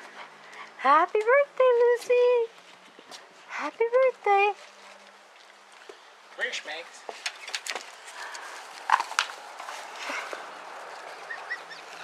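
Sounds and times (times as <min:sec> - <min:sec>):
dog paws scrambling on wood: 0:06.9 - 0:12.0.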